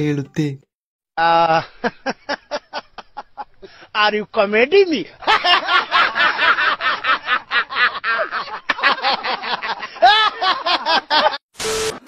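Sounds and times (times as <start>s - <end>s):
man laughing hard: 1.2s - 3.5s, 5.2s - 11.4s.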